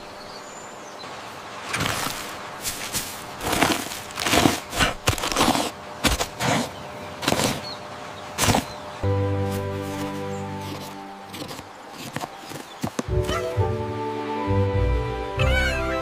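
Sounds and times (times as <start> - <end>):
cardboard rustling scrapes: 1.7 - 7.7, 8.4 - 8.7, 9.4 - 13.1
music with held chord: 9.0 - 11.3, 13.1 - 16.0.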